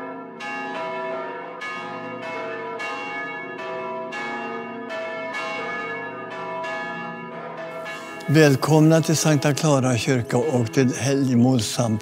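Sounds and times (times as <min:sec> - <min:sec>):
church bells ringing: 0:00.0 - 0:12.0.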